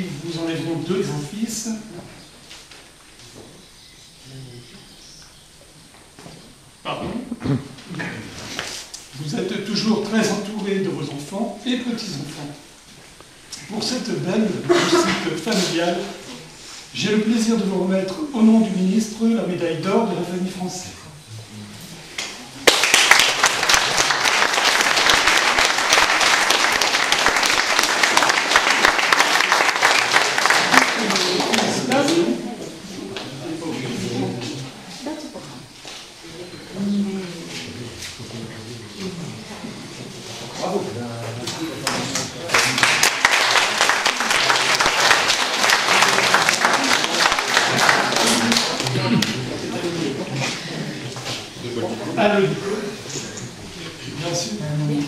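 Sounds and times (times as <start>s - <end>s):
group applauding: 22.2s - 32.4s, 41.5s - 49.9s.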